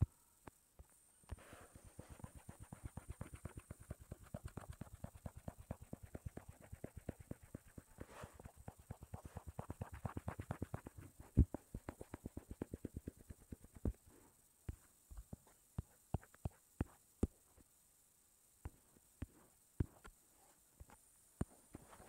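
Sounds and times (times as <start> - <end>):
soft taps on a touchscreen: 3.6 - 17.4, 18.6 - 20.2, 20.8 - 22.0.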